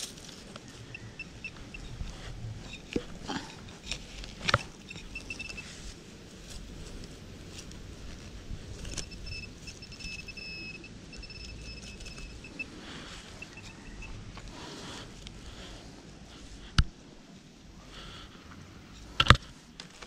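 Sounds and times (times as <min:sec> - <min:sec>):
thin high steady tone: 0:00.9 - 0:05.8, 0:08.8 - 0:14.3.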